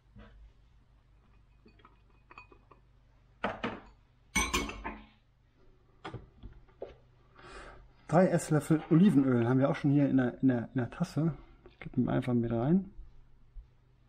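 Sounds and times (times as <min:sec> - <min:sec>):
ceramic bowl clinking in metal sink: 0:01.5 - 0:05.0.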